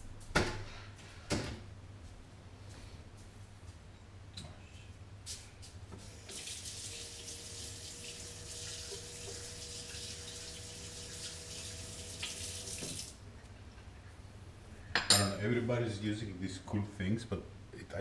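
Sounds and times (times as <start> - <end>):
tap water running: 6.0 - 13.2.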